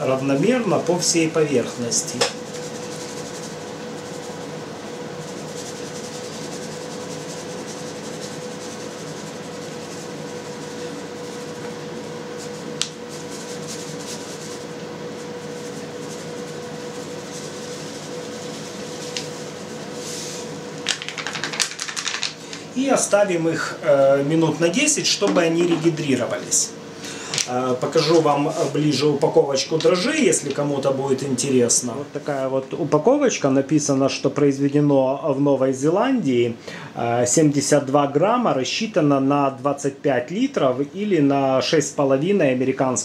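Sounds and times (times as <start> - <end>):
machine hum: 0.0 - 33.2
yeast rustling from paper packet: 0.5 - 22.6.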